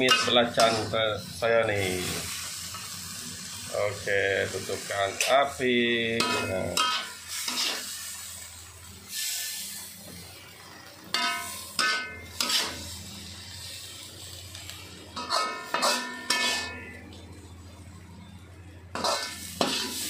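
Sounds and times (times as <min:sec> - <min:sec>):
metal spatula scraping wok: 0:00.0 - 0:03.6, 0:04.4 - 0:08.4, 0:09.1 - 0:10.3, 0:11.1 - 0:14.3, 0:15.1 - 0:17.0, 0:18.9 - 0:20.0.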